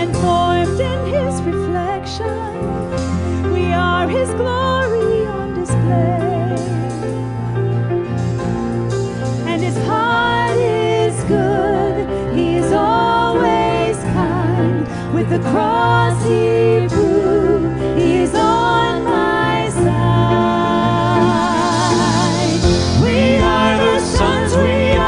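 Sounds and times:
live band playing: 0.0s - 25.0s
women singing with vibrato: 9.5s - 25.0s.

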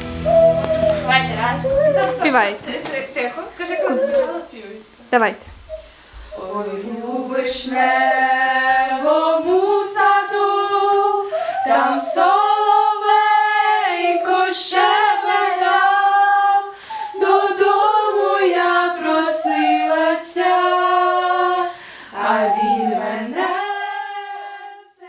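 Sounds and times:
girls singing together: 6.1s - 25.0s.

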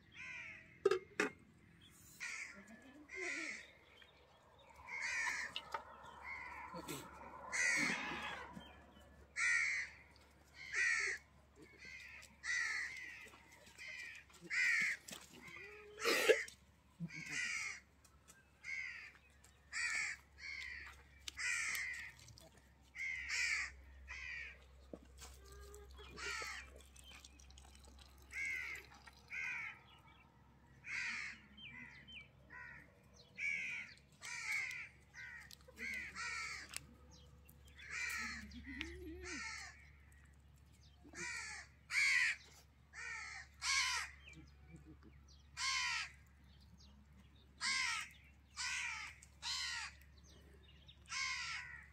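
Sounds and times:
crows cawing: 0.1s - 1.0s, 2.2s - 3.7s, 4.7s - 16.2s, 17.0s - 17.9s, 18.6s - 22.2s, 23.0s - 24.7s, 26.0s - 26.7s, 28.2s - 29.9s, 30.8s - 36.8s, 37.8s - 40.2s, 41.2s - 44.3s, 45.6s - 46.2s, 47.6s - 50.0s, 51.1s - 51.9s.

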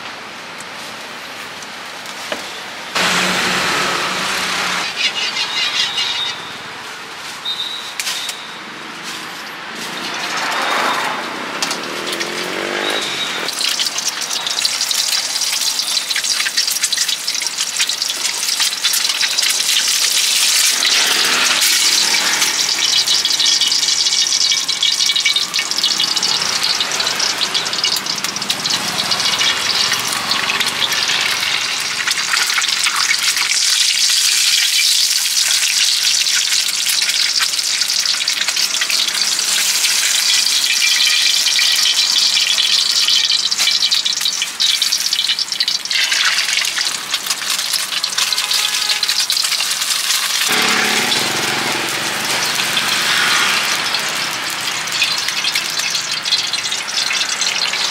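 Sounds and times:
egg sizzling in oil: 11.6s - 57.9s.

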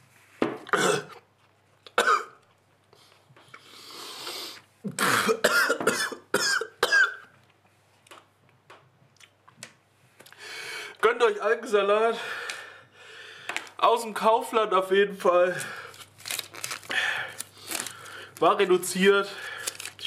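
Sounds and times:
man coughing and gagging: 0.7s - 1.2s, 2.0s - 2.4s, 4.9s - 7.3s
noisy breath: 2.9s - 4.7s, 10.3s - 11.0s, 12.1s - 13.8s, 16.8s - 18.4s, 19.3s - 19.8s
retching sounds: 15.7s - 18.5s, 19.4s - 20.0s.

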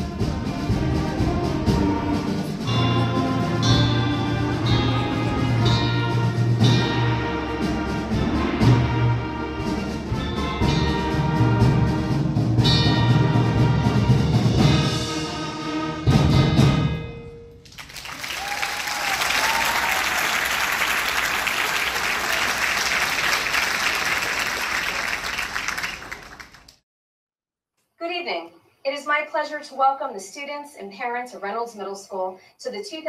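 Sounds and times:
concert band playing: 0.0s - 26.3s
audience applause: 17.6s - 26.8s.

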